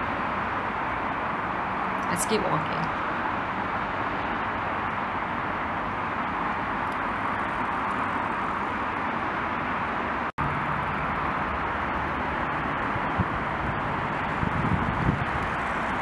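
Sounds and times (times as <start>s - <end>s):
distant road traffic roar: 0.0s - 16.0s.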